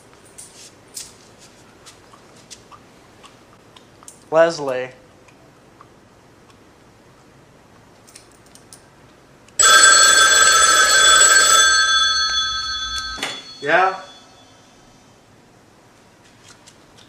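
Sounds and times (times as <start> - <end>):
pay phone bell ringing: 9.6 - 14.6.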